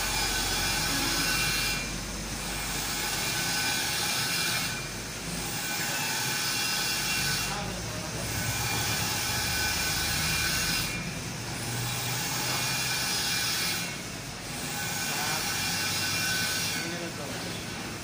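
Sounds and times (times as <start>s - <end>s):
machine-shop machinery running: 0.0s - 18.0s.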